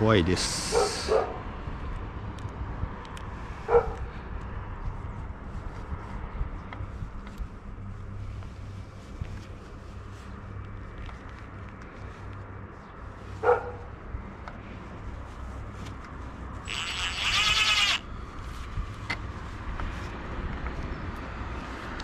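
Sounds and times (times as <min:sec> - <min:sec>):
steady low rumble: 0:00.0 - 0:16.7
dog barking: 0:00.7 - 0:01.4, 0:03.7 - 0:04.0, 0:13.4 - 0:13.9.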